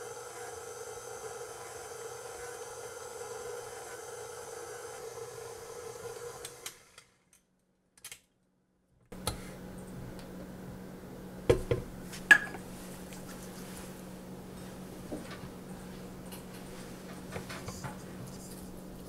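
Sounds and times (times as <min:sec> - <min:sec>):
stand mixer motor running: 0:00.0 - 0:06.9.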